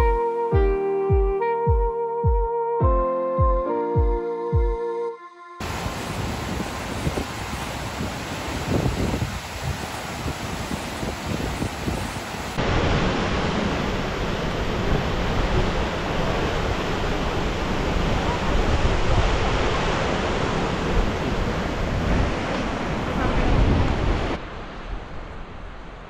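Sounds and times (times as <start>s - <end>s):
river rushing: 5.6s - 24.8s
wind buffeting microphone: 5.6s - 25.8s.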